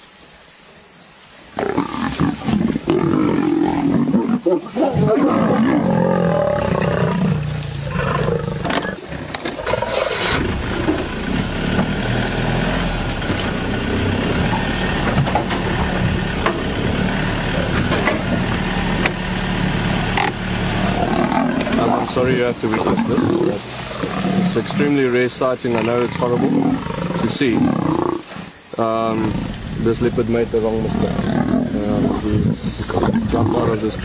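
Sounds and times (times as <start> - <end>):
lions growling in a fight: 1.6 - 34.0
vehicle engine idling: 5.8 - 27.5, 28.5 - 34.0.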